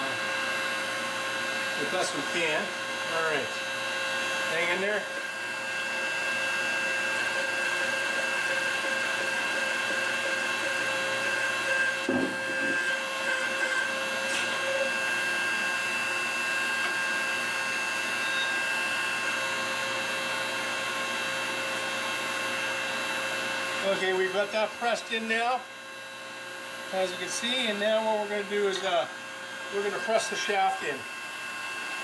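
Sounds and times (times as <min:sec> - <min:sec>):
electric motor drone: 0:00.0 - 0:25.7, 0:26.4 - 0:32.0
short thump: 0:12.1 - 0:12.7.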